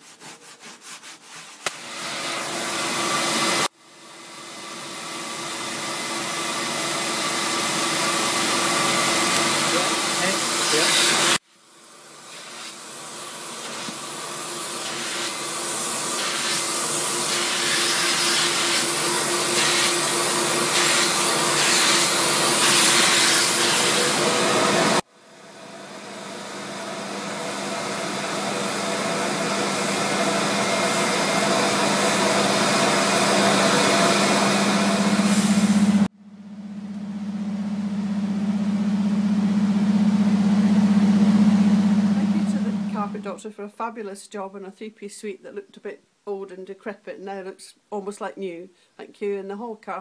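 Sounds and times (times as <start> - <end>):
vacuum motor humming: 4.3 - 11.4, 26.6 - 43.2.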